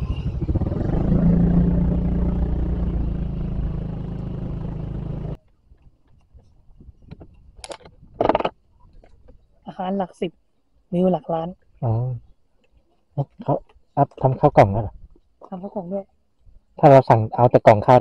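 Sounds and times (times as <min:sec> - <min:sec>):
motorcycle engine riding: 0:00.0 - 0:05.4.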